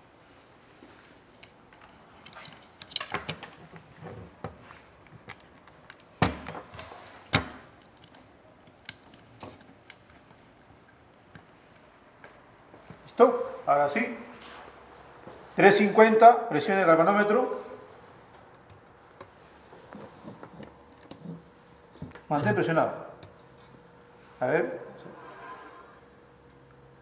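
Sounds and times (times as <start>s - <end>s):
small clicks and knocks: 7.3s - 10.4s.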